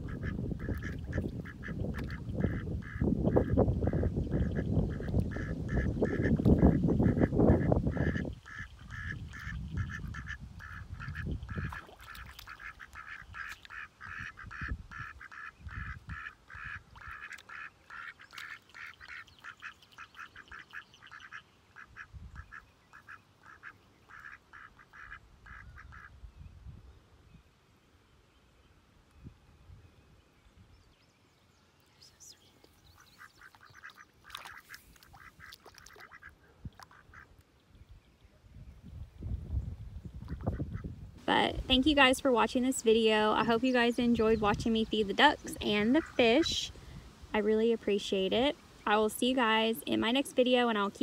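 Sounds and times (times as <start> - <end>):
ducks quacking: 0.0 - 26.1, 33.0 - 37.3
low rumble on microphone: 37.8 - 42.4.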